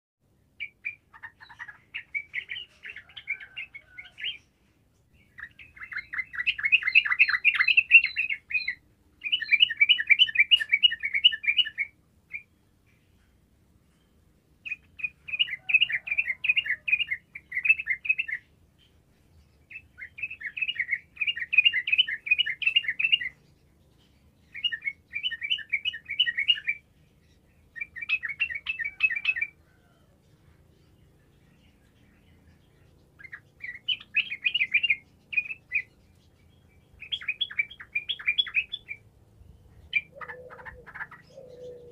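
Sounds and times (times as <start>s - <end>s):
bird chattering song: 0.6s - 4.5s, 5.2s - 13.2s, 14.6s - 30.0s, 30.8s - 41.9s.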